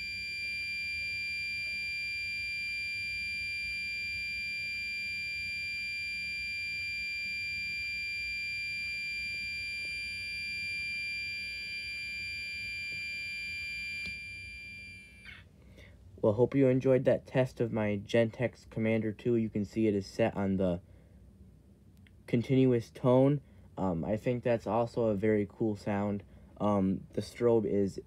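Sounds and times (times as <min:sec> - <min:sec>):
fire alarm horn tone: 0:00.0 - 0:15.4.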